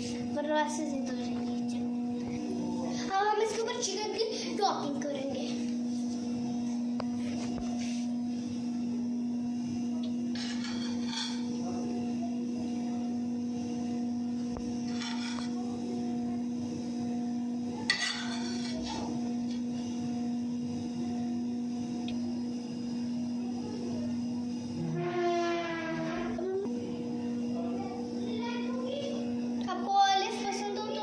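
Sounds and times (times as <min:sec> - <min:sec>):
low hum: 0:03.7 - 0:29.7
spoon scraping a frying pan: 0:10.4 - 0:11.4, 0:14.8 - 0:15.6, 0:17.9 - 0:18.8.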